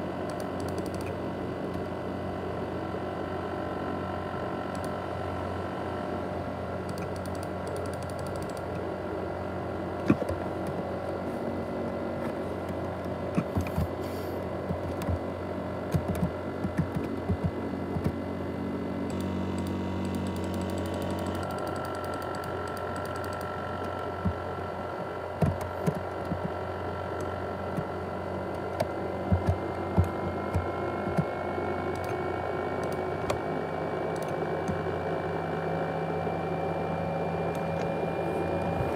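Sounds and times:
laptop fan whirring: 0:00.0 - 0:38.9
sharp clicks and taps: 0:15.9 - 0:18.2.

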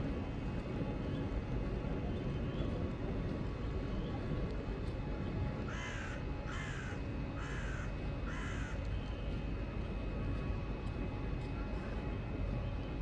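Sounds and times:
steady low rumble: 0:00.0 - 0:13.0
crow cawing: 0:05.7 - 0:08.8.

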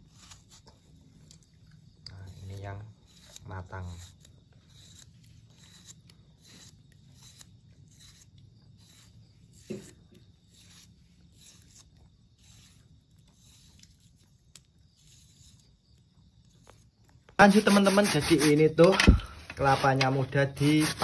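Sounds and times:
knife slicing tomatoes: 0:17.4 - 0:21.0.

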